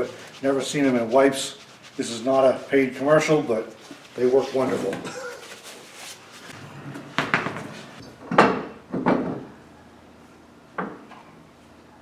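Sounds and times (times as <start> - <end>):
sharp knocks and clatters: 7.0 - 9.5.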